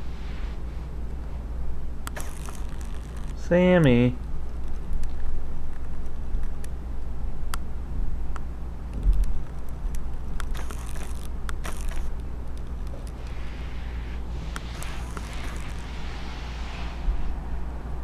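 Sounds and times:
microphone handling noise: 0:10.5 - 0:16.3.

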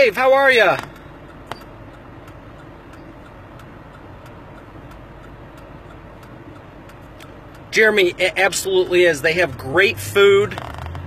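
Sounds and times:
car cabin background noise: 0:00.0 - 0:11.0
faint light ticks: 0:00.8 - 0:07.8.

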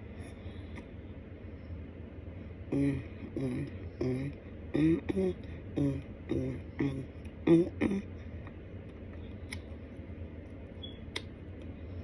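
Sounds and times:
low steady hum: 0:00.0 - 0:12.0
muffled vocal sounds: 0:02.6 - 0:08.5.

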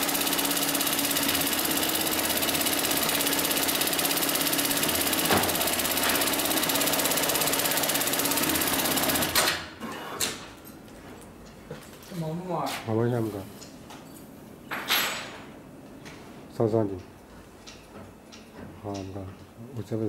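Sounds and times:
sewing machine rattling: 0:00.0 - 0:09.6.

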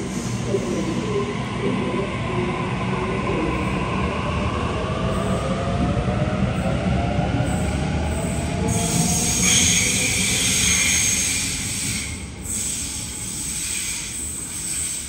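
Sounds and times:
electric train rumble and motor whine: 0:00.0 - 0:15.0
train wheels squealing: 0:07.4 - 0:15.0.

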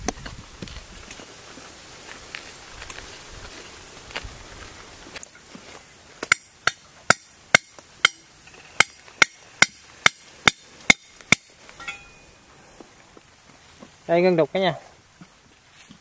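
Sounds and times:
hammer striking metal chisel: 0:06.3 - 0:12.2.

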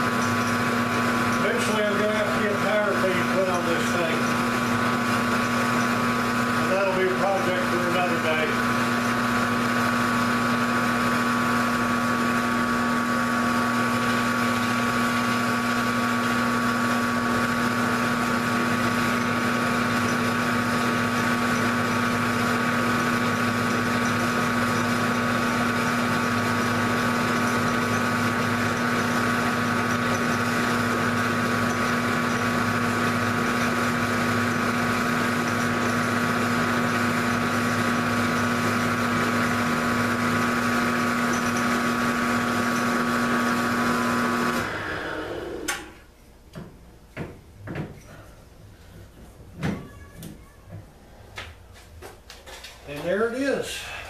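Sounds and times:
milling machine humming with whine: 0:00.0 - 0:46.1.

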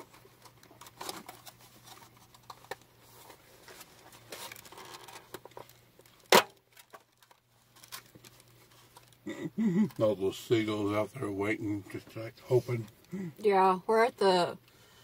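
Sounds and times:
plastic packaging crinkling: 0:00.0 - 0:10.9
sharp loud snap: 0:06.3 - 0:06.6.

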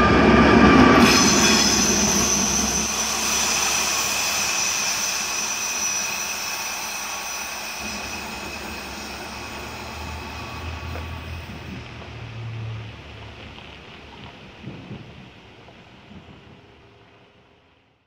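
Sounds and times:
diesel locomotive engine running: 0:00.0 - 0:18.0
high wheel squeal: 0:00.2 - 0:13.7.

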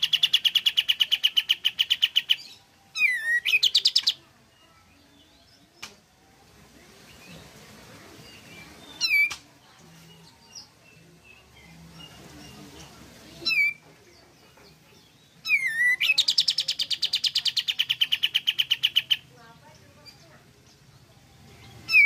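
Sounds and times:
bulbul calling: 0:00.0 - 0:04.2, 0:13.4 - 0:13.8, 0:15.4 - 0:20.4, 0:21.7 - 0:22.0
fast rattling bird trill: 0:00.0 - 0:04.2, 0:15.4 - 0:19.3.

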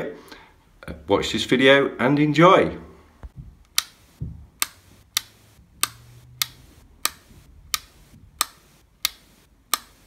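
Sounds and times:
light switch clicking: 0:03.6 - 0:04.0, 0:04.6 - 0:10.0.

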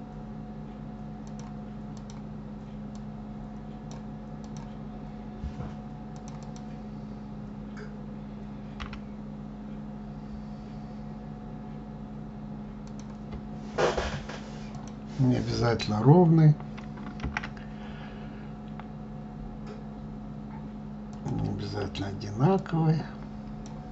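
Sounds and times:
low electrical hum: 0:00.0 - 0:23.9
mouse clicks: 0:06.2 - 0:06.7.

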